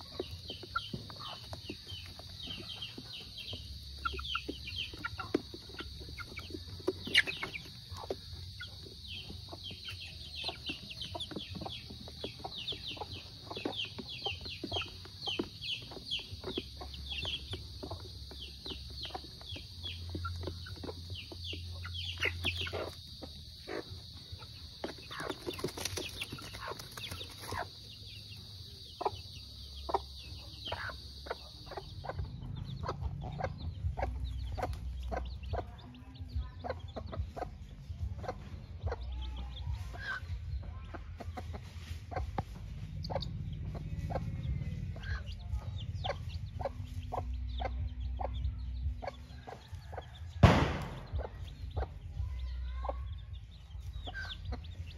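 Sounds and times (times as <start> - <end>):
chickens pecking from a rubber pan: 0.0 - 41.6
hen clucking: 0.0 - 54.9
foraging in dry leaves: 41.3 - 46.8.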